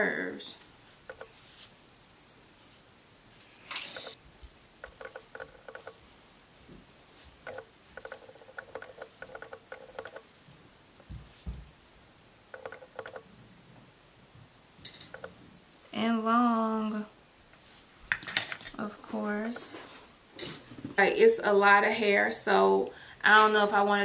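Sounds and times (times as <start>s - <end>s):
hair rustling: 0.0s - 11.8s
bracelets jangling: 3.8s - 13.2s.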